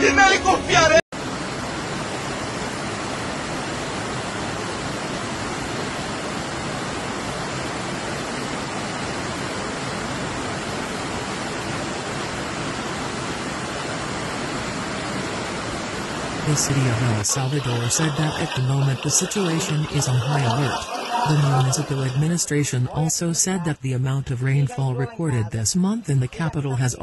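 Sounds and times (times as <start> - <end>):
flooded river rushing: 1.2 - 24.0
water pouring over a wall: 16.7 - 22.4.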